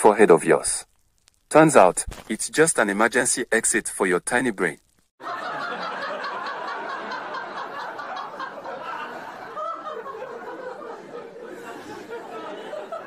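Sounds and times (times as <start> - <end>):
crowd laughing: 5.2 - 13.0.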